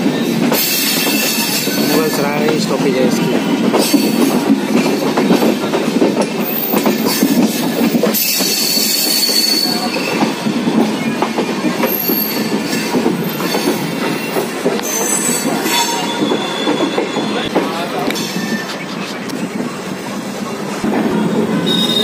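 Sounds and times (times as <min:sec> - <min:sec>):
train wheels rumbling on rails: 0:00.0 - 0:22.0
wheel squeal: 0:08.1 - 0:10.4, 0:11.8 - 0:17.5, 0:21.6 - 0:22.0.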